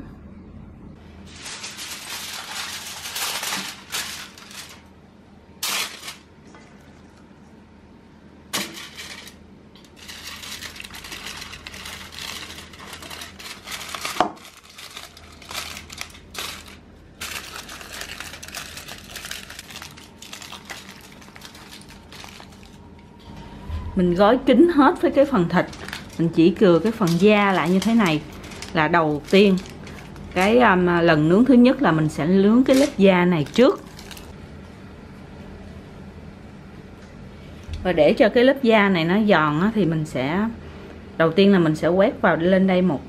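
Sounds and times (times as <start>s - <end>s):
aluminium foil crinkling: 1.2s - 4.9s, 5.6s - 7.1s, 8.6s - 23.1s, 25.0s - 34.4s.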